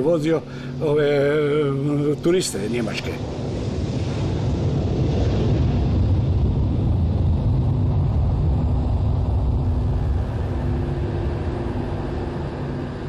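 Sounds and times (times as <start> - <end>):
jet airliner taking off: 0.0 - 13.0.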